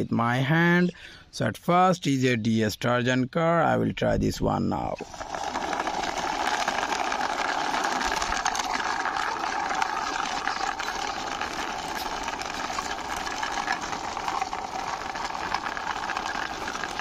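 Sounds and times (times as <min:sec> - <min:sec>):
toy car rolling on stone: 0:04.8 - 0:17.0.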